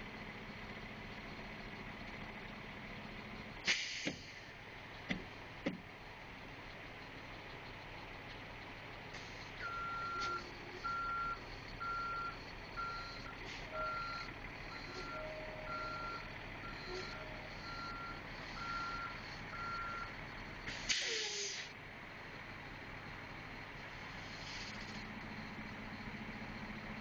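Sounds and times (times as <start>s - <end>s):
engine running: 0.0s - 27.0s
air brake hissing: 3.6s - 4.5s, 20.7s - 21.7s, 24.2s - 24.9s
backup alarm beeping: 9.6s - 20.6s.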